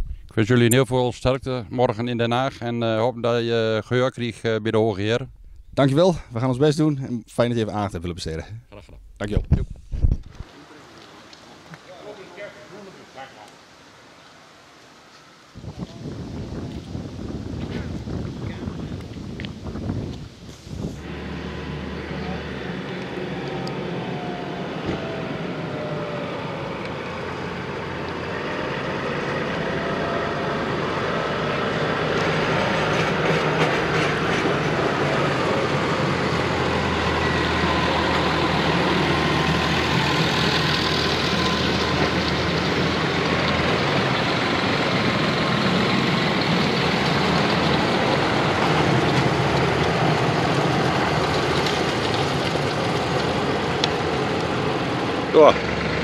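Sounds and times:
tractor diesel engines passing: 0:10.4 - 0:14.1, 0:16.2 - 0:56.0.

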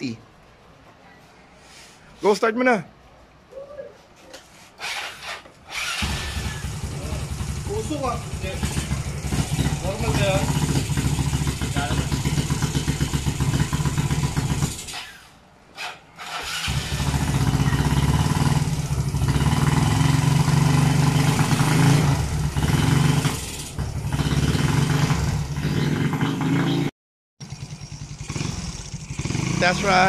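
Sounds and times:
scooter engine running: 0:05.8 - 0:14.9, 0:16.5 - 0:26.7, 0:27.4 - 0:30.0.

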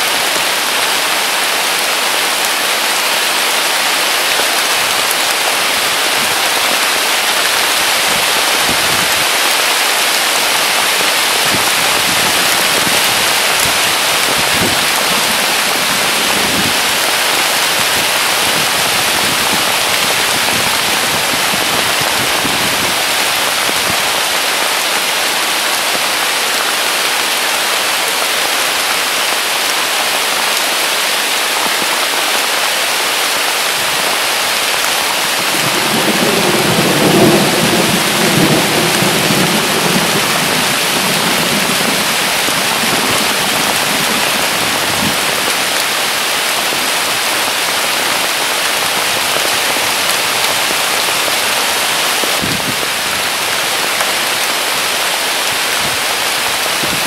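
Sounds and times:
steady rain falling: 0:00.0 - 0:57.0
low thunder rumble: 0:35.6 - 0:43.2.

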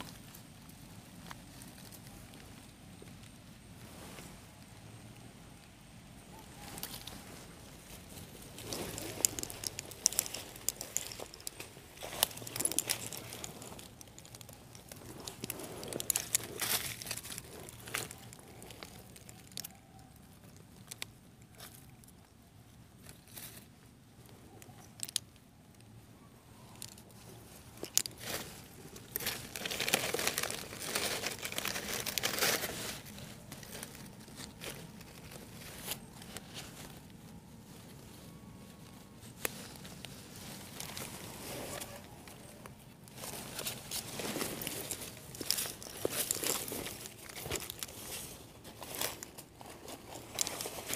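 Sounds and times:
leaf litter rustling underfoot: 0:06.3 - 0:20.3, 0:27.2 - 0:50.9.

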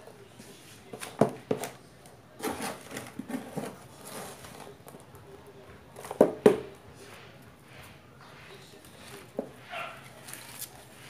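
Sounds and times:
scrapes and taps: 0:02.4 - 0:05.1.

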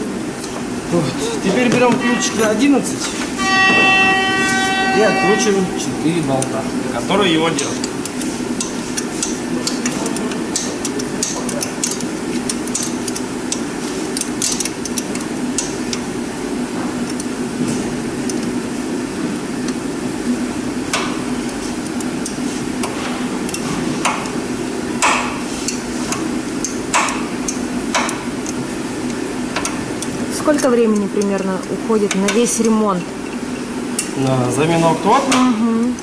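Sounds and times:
steady hum: 0:00.0 - 0:36.0
sharp metallic knocks: 0:03.4 - 0:06.5, 0:25.0 - 0:25.4
wrench clicking on bolts: 0:07.6 - 0:16.0.

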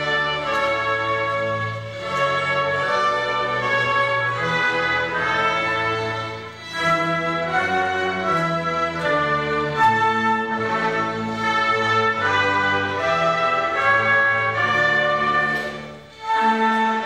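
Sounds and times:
orchestra playing sustained chords: 0:00.0 - 0:17.0.

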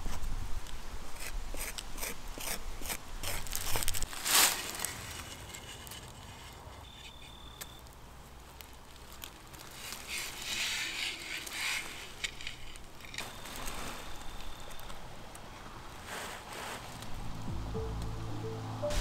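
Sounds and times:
cloth and plastic rustling: 0:03.4 - 0:06.6, 0:08.4 - 0:15.0
faint high whistle: 0:06.8 - 0:07.8, 0:13.3 - 0:14.9.

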